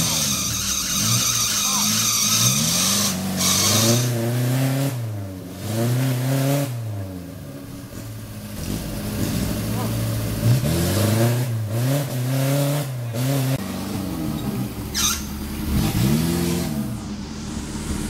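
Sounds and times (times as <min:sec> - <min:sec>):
car engine revving: 0:00.0 - 0:18.0
brief high-pitched squeak: 0:14.4 - 0:15.4.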